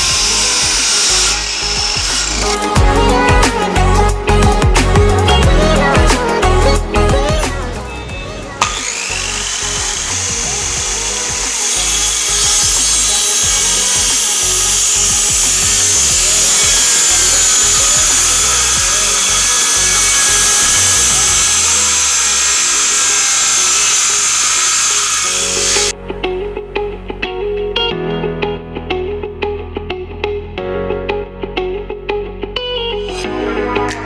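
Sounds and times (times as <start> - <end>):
circular saw cutting wood: 0.0 - 4.1, 8.5 - 25.9
background music: 0.0 - 34.0.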